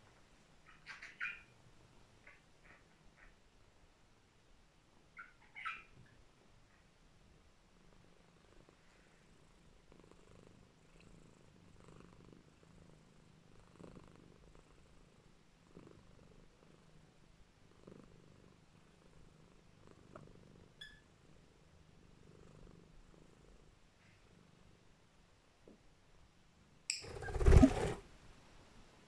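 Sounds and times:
cat chirp: 0:05.2 - 0:06.1
cat purring: 0:07.3 - 0:25.1.

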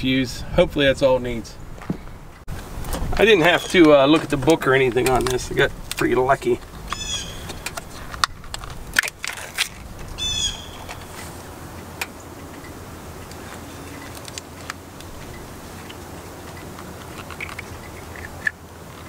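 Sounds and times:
hands handling wiring clicks: 0:02.9 - 0:19.0
songbird chirping: 0:03.2 - 0:08.1, 0:09.9 - 0:19.0.

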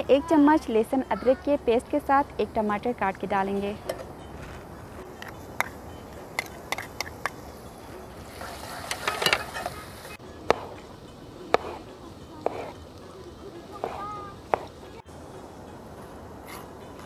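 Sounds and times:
onions sizzling in a pot: 0:06.4 - 0:10.8
utensils clicking and clattering: 0:08.3 - 0:10.2.

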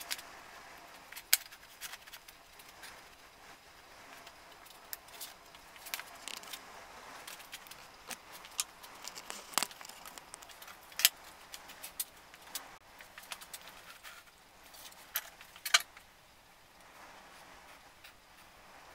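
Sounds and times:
faint steady hiss: 0:00.0 - 0:18.9.

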